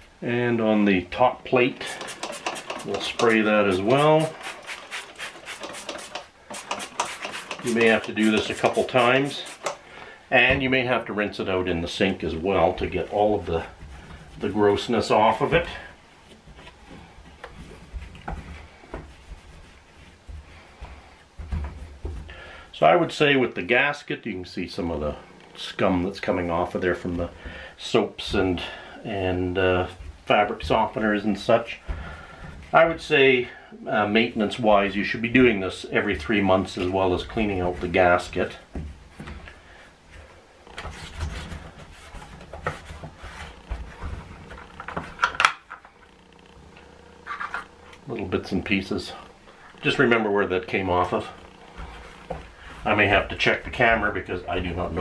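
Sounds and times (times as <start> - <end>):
cloth rubbing on plastic: 1.8 - 9.7, 12.6 - 22.2, 40.0 - 45.2
plastic parts knocking: 40.7 - 46.1.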